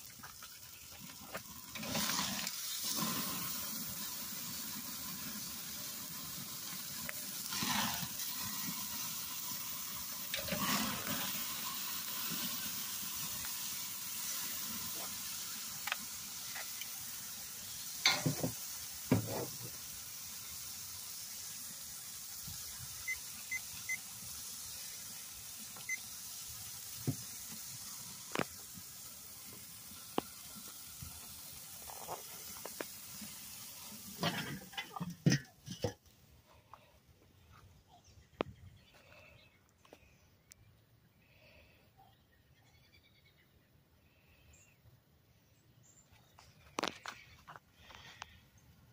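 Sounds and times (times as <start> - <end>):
steaks sizzling on a grill: 0.0 - 35.8.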